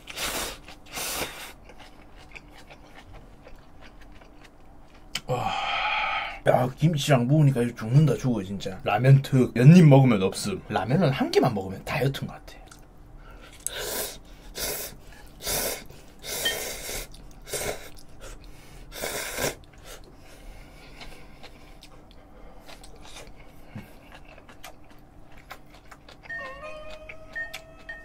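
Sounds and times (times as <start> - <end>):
soft eating sounds: 0.0 - 6.8, 7.5 - 28.0
person slurping noodles: 18.9 - 19.6.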